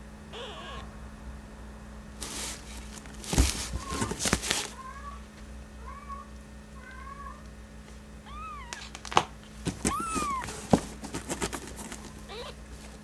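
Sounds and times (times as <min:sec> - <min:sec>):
kitten mewing: 0:00.3 - 0:00.9, 0:08.2 - 0:09.0, 0:09.9 - 0:10.6, 0:12.2 - 0:12.6.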